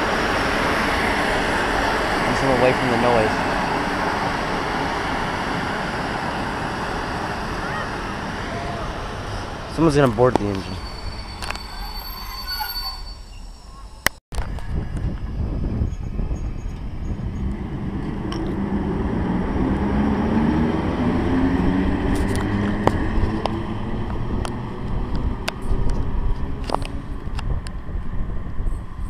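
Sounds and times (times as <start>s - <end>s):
wheels clicking on track: 0.0s - 12.2s, 20.6s - 29.0s
electric locomotive rumble and motor hum: 0.0s - 29.0s.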